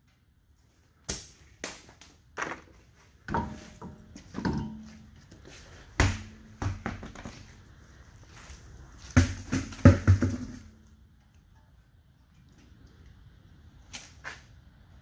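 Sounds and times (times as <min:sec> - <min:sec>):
car wheel thudding and knocking: 0:09.2 - 0:10.7.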